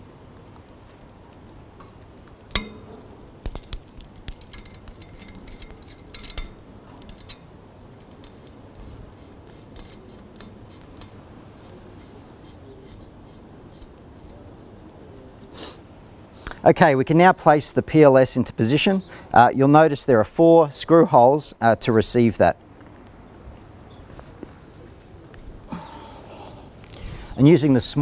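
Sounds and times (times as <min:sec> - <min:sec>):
metal connectors clicking: 0:02.5 - 0:07.4.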